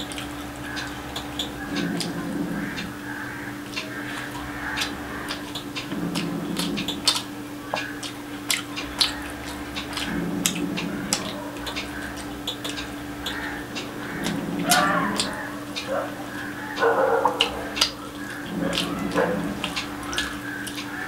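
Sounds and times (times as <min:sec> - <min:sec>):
person chewing food: 0:00.0 - 0:02.9, 0:03.7 - 0:21.0
steady low hum: 0:00.0 - 0:21.0
wet mouth clicks and smacks: 0:04.8 - 0:13.4.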